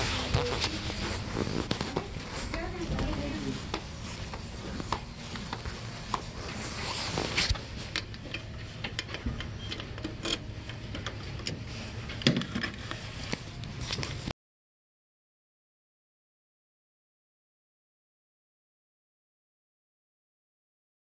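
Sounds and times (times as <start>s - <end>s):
footsteps: 0.0s - 8.9s
steady low hum: 0.0s - 14.3s.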